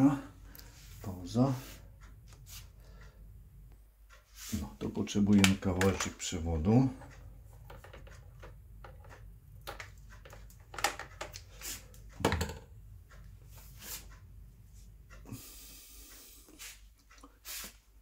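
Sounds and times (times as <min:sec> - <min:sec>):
steady low hum: 0:00.0 - 0:17.0
plastic tubing clicks and knocks: 0:05.2 - 0:06.3, 0:07.0 - 0:12.7
brief rustling hiss: 0:16.5 - 0:17.9.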